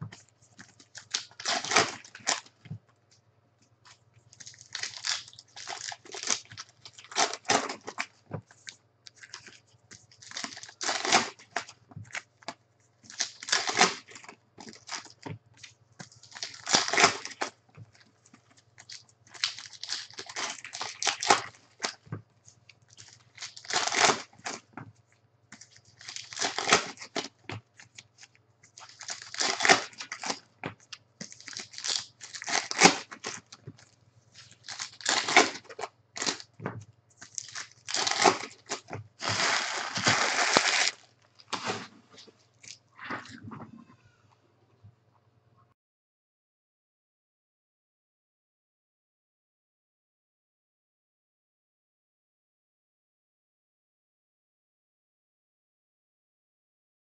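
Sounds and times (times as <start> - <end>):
foil wrappers crinkling and tearing: 0.6 - 2.6, 3.9 - 24.7, 25.5 - 36.6, 37.2 - 43.4.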